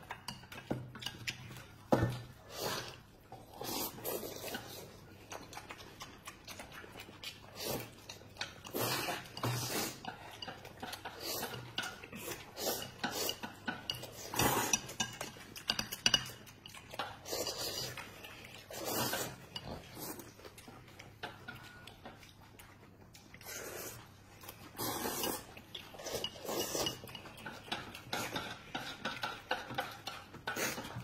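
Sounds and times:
slurping and chewing: 0.0s - 31.0s
chopsticks clicking on bowls: 8.1s - 22.6s, 25.3s - 31.0s.

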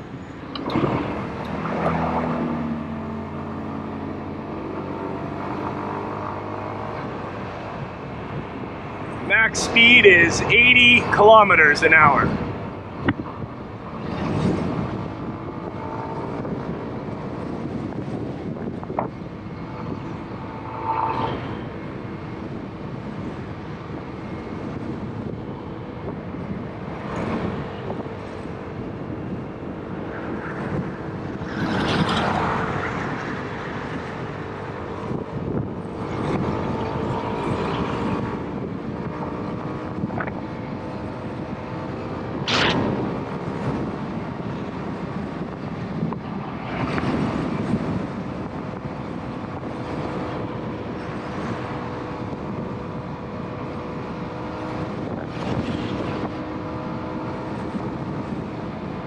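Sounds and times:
wind noise rushing: 7.1s - 53.1s.

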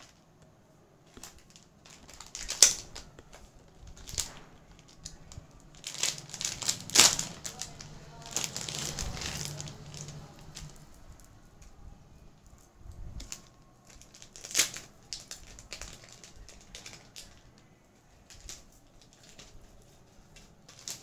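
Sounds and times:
plastic packaging crinkling: 0.0s - 21.0s.

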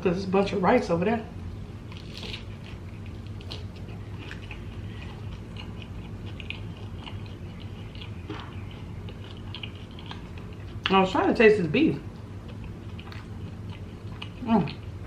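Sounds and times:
low steady hum: 0.0s - 15.0s
crunchy biting and chewing: 1.8s - 11.2s, 12.0s - 15.0s.

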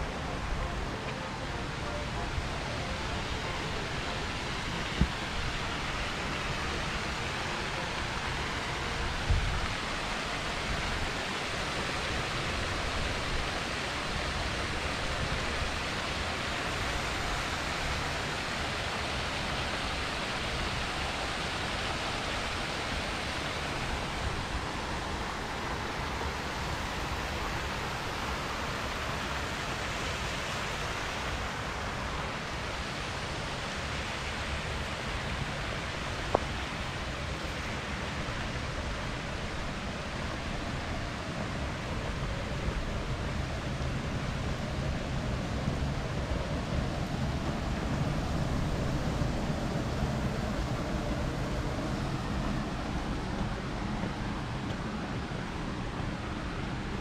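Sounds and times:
steady rushing noise: 0.0s - 57.0s.

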